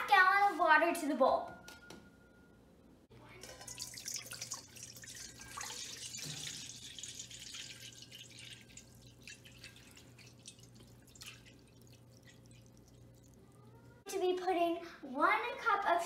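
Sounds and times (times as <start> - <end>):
water pouring into metal bowl: 3.4 - 13.6.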